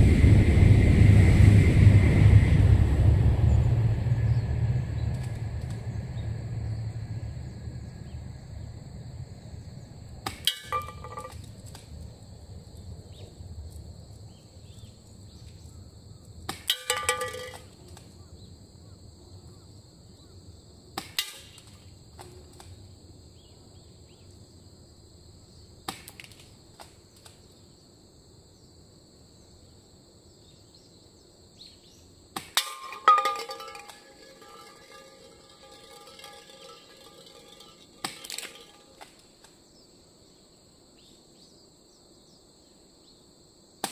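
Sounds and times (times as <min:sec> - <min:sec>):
pellets hitting metal cans: 0:10.3 - 0:11.5, 0:16.5 - 0:17.7, 0:32.4 - 0:39.2.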